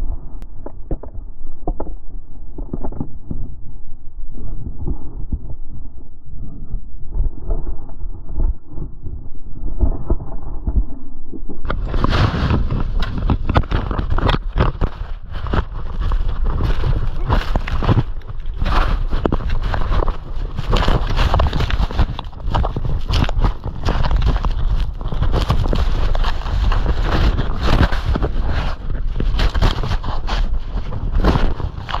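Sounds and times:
muffled wind rumble: 0.0s - 32.0s
snow rushing and scraping camera: 11.7s - 32.0s.

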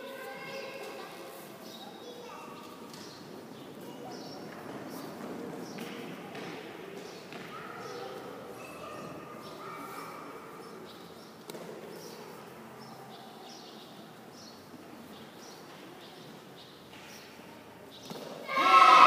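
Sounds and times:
faint distant voices: 0.0s - 19.0s
loud voices shouting: 18.4s - 19.0s.

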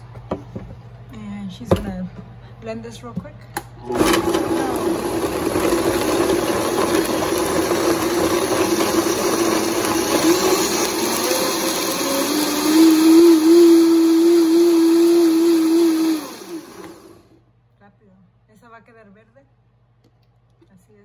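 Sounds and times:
countertop blender running: 3.8s - 17.4s.

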